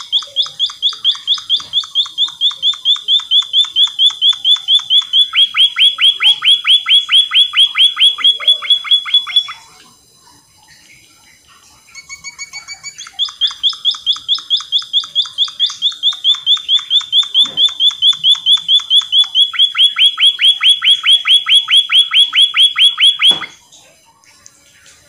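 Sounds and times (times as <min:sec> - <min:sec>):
bird singing high notes: 0:00.0 - 0:09.7.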